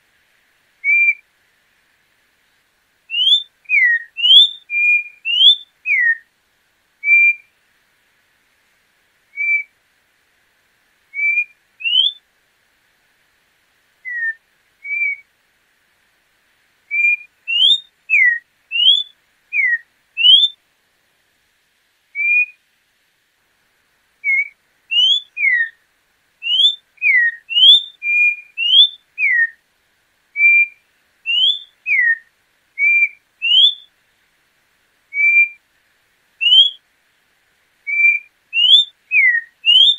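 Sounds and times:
bird whistling song: 0.8s - 1.2s, 3.1s - 6.2s, 7.0s - 7.5s, 9.3s - 9.7s, 11.1s - 12.2s, 14.0s - 15.3s, 16.9s - 20.6s, 22.2s - 22.6s, 24.2s - 25.8s, 26.4s - 29.6s, 30.4s - 33.9s, 35.1s - 35.6s, 36.4s - 36.8s, 37.9s - 39.9s.

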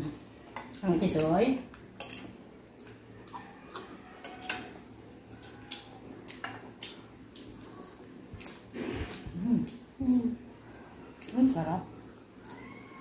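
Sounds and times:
cutlery tapping on plates: 3.3s - 4.7s.

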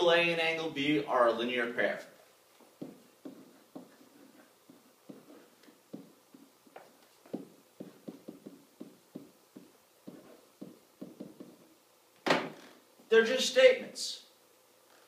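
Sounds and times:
pen tapping on whiteboard: 2.8s - 4.0s, 4.7s - 11.7s.

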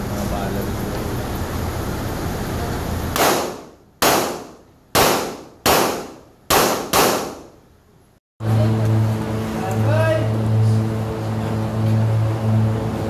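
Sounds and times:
pistol shots echoing indoors: 3.2s - 7.6s.

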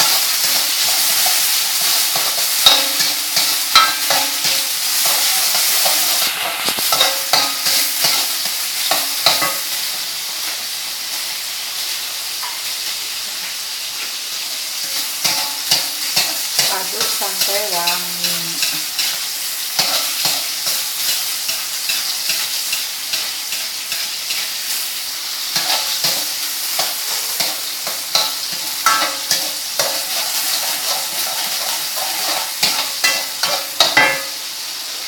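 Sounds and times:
spatula scraping and knocking wok: 0.0s - 11.3s, 14.0s - 34.5s
oil sizzling in a wok: 0.0s - 35.0s.

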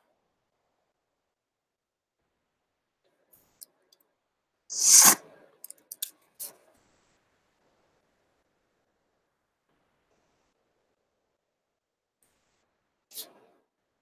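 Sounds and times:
short loud rush of noise: 4.7s - 5.2s.

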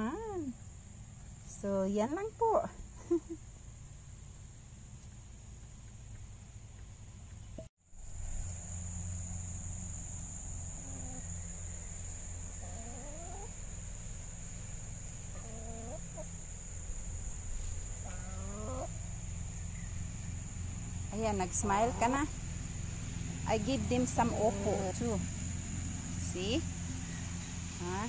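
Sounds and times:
high insect drone: 7.9s - 28.0s
hens clucking: 12.6s - 13.6s, 15.3s - 16.4s, 17.9s - 18.9s.

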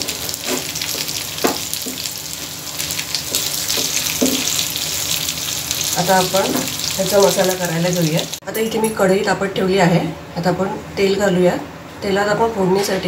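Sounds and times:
chicken sizzling in oil: 0.0s - 8.4s.

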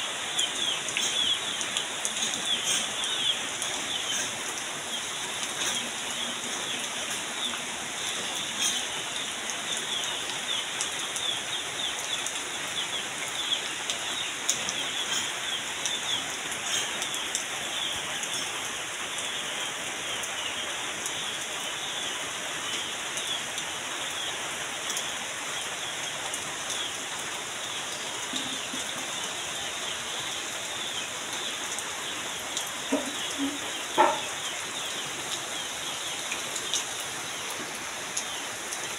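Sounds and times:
rain on a metal roof: 0.0s - 38.9s
raindrops on foliage: 0.0s - 38.9s.

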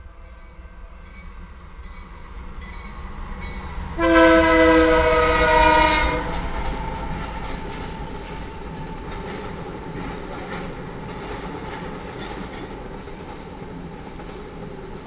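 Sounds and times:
freight train rumbling past: 0.0s - 15.0s
train air horn: 4.0s - 6.7s.

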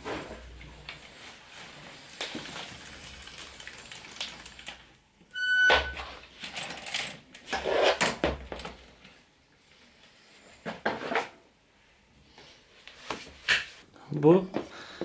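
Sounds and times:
high-pitched beep: 5.3s - 6.0s.

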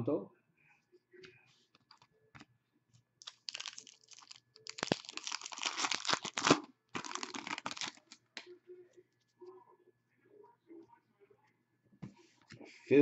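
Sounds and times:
foil wrapper tearing and crinkling: 3.2s - 8.2s.

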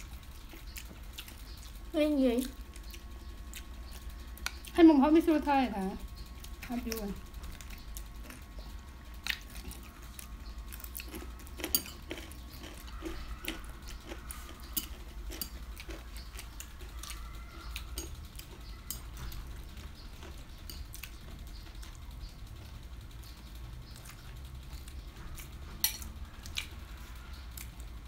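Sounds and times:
chewing: 0.0s - 4.8s, 6.1s - 22.1s, 23.2s - 28.0s
low steady hum: 0.0s - 28.0s
chopsticks and fork clicking on plates: 9.2s - 22.0s, 23.2s - 27.9s.

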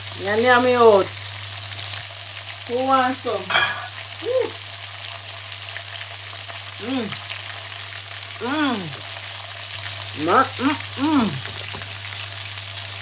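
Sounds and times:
meat sizzling in a pot: 0.0s - 13.0s
person humming mmm: 4.2s - 4.6s, 6.8s - 7.4s, 8.4s - 9.1s, 10.2s - 11.6s.

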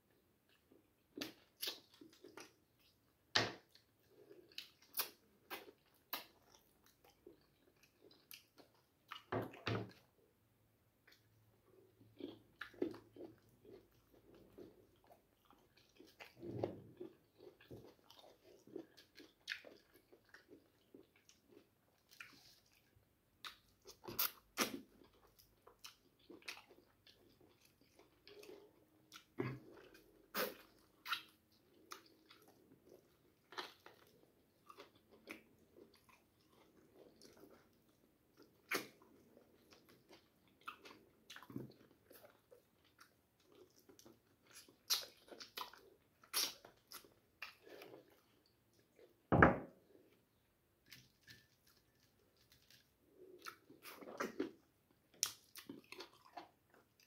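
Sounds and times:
man chewing and biting meat: 55.2s - 57.0s.

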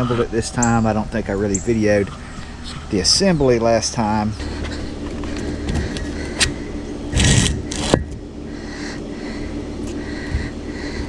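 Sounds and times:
steady low hum: 0.0s - 11.0s
metal grill grate scraping: 4.4s - 8.1s.

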